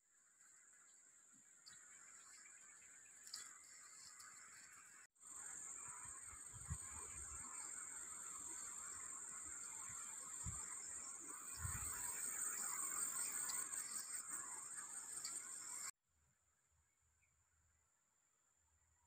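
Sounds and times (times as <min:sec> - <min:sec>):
high-pitched insect drone: 0:01.6 - 0:15.9.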